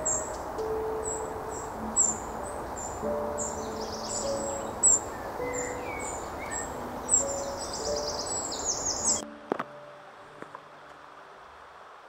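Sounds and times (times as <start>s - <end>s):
wren singing trill: 0.0s - 9.3s.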